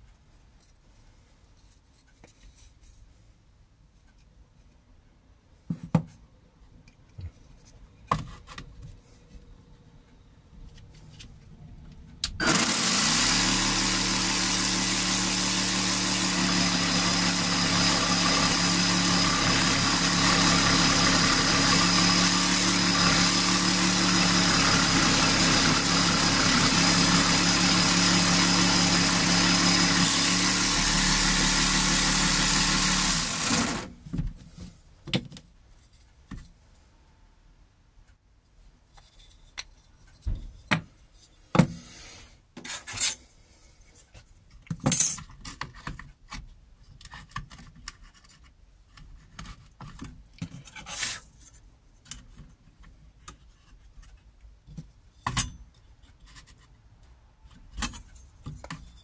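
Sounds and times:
reciprocating saw cutting wood: 12.4s - 34.0s.

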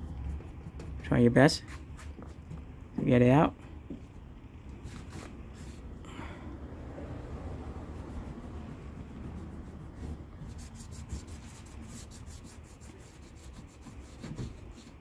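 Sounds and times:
steady low rumble: 2.4s - 12.8s
scraping rubber residue off window: 4.8s - 5.9s, 7.5s - 15.0s.

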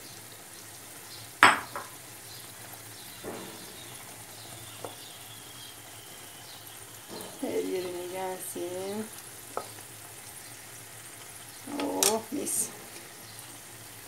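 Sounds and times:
food sizzling in frying pan: 0.0s - 14.0s.

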